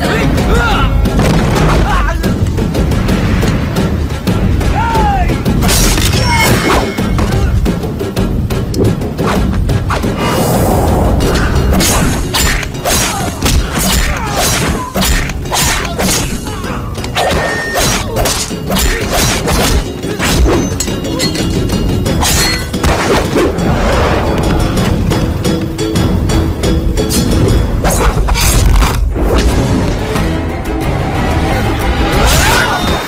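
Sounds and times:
action film score: 0.0 - 33.0.

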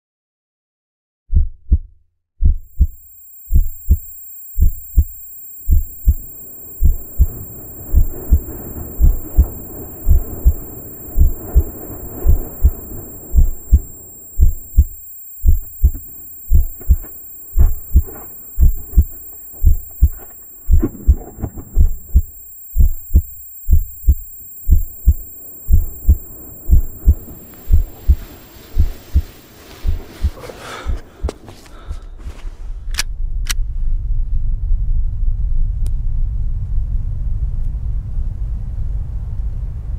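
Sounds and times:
muffled heartbeat thumps: 1.3 - 4.0, 5.7 - 31.5.

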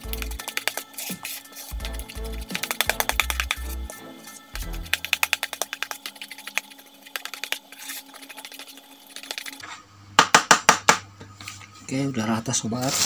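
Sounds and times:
spoon stirring in plastic bowl: 0.0 - 9.6.

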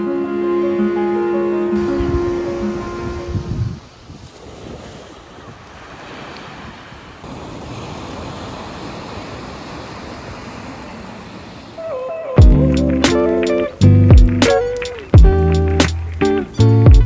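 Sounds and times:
waves washing up a beach: 0.0 - 12.3.

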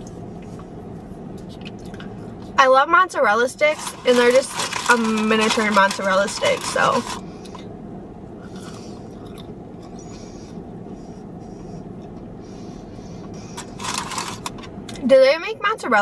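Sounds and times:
steady low hum: 0.0 - 16.0
paper wrapping crinkling: 3.7 - 7.2, 13.6 - 14.6
chewing fried food: 8.4 - 10.2.

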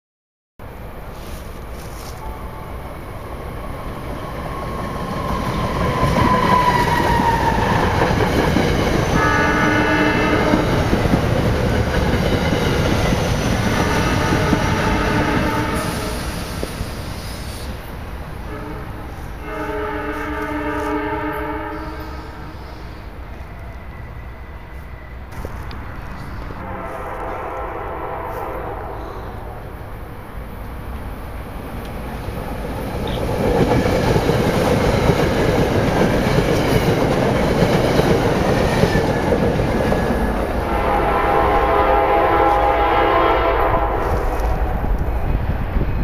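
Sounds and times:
train wheels rumbling on rails: 0.6 - 46.0
train whine dropping in pitch: 2.1 - 11.1, 12.2 - 17.8, 18.4 - 29.9, 37.5 - 46.0
multi-tone train horn: 9.0 - 11.0, 13.6 - 16.4, 18.4 - 25.2, 26.2 - 29.7, 33.0 - 33.5, 40.6 - 44.7.

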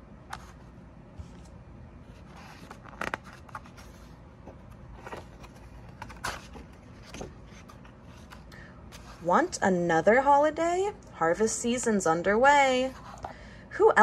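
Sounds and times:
book pages rustling: 0.3 - 9.3.

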